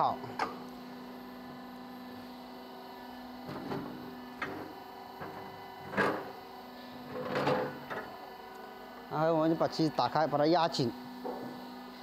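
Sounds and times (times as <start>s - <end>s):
metal clanks and knocks: 3.5s - 6.4s, 7.1s - 8.1s.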